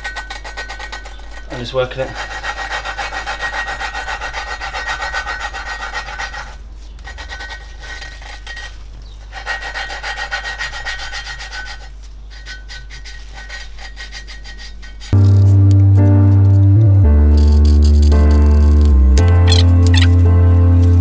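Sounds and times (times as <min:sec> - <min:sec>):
valve lapping gritty rasp: 0:01.1 - 0:15.2.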